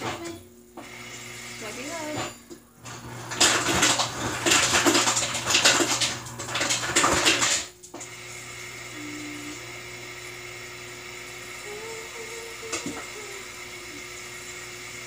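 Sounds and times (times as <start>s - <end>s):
tap water running into cup: 2.9s - 10.2s, 11.1s - 15.0s.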